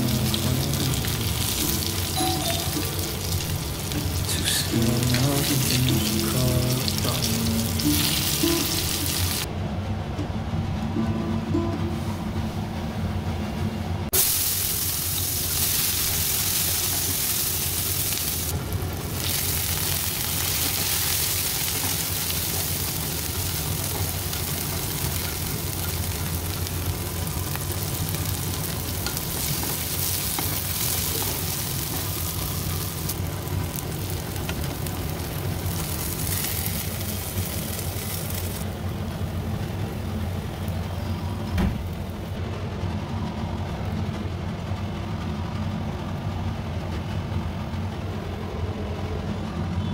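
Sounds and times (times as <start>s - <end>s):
onions sizzling in hot oil: 0.0s - 9.5s, 14.2s - 40.8s.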